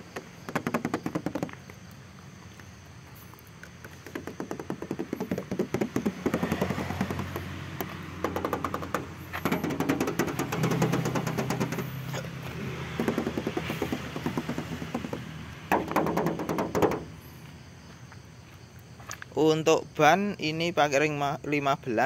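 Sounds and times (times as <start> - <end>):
knuckles knocking on metal panels: 0.5 - 1.6, 4.0 - 11.9, 12.9 - 17.2.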